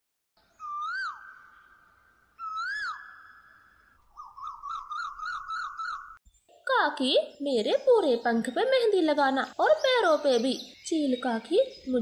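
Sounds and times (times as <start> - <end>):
whistled bird calls: 0.4 - 6.2
warbling bird notes: 0.6 - 6.2.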